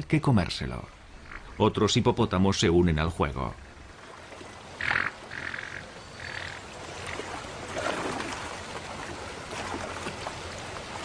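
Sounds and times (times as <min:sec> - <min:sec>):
river water flowing: 0:00.0 - 0:11.0
hippos splashing in water: 0:04.0 - 0:11.0.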